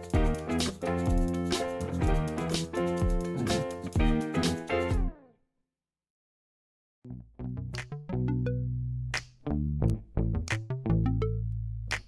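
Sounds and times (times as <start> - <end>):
keyboard chords: 0.0 - 5.4, 7.1 - 12.0
deep drum beat: 3.0 - 4.3.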